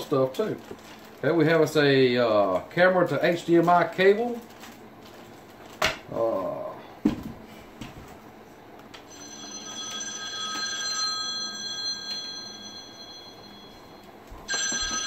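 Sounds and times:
phone ringtone: 9.1 - 15.0.

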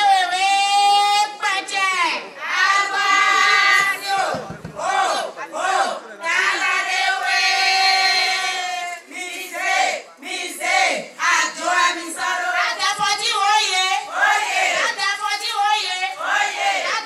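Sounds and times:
women singing along: 2.4 - 17.0.

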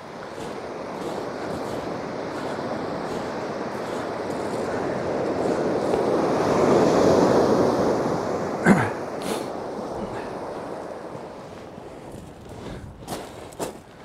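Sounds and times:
surf crashing on shingle beach: 0.0 - 14.0.

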